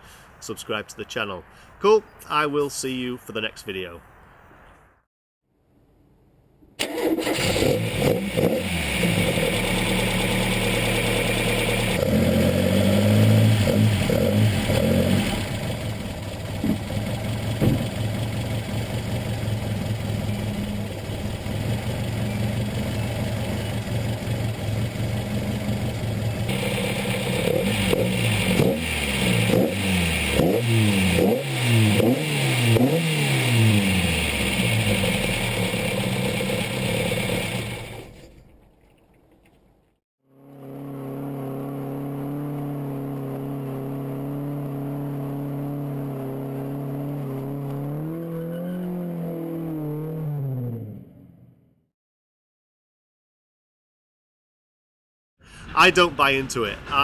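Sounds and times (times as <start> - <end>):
car engine revving: 6.8 - 38.1, 40.3 - 51.2.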